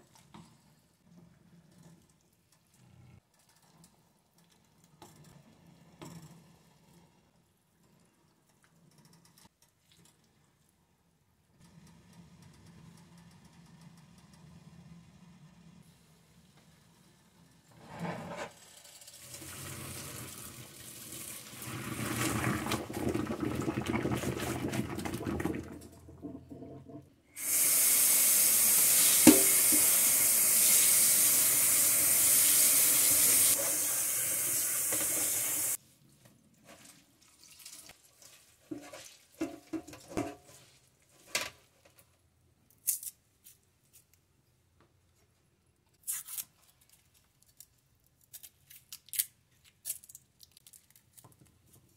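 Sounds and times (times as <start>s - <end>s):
tap water rushing into sink: 19.2s - 35.8s.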